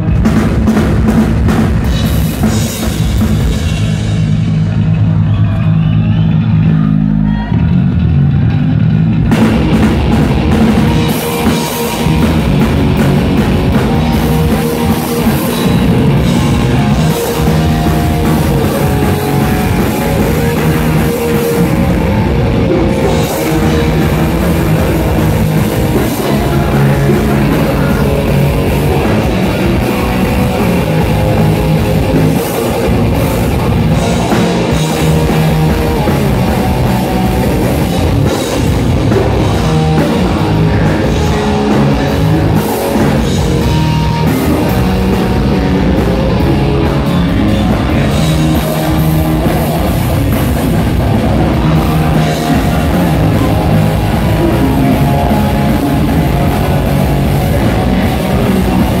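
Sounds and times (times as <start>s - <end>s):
rock band playing live: 0.0s - 59.0s
person singing into microphone: 22.7s - 30.9s.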